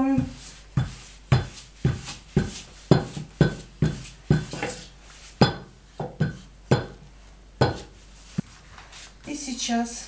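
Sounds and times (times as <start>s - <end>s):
rolling pin knocking on table: 0.2s - 4.8s, 5.4s - 7.0s, 7.6s - 7.9s.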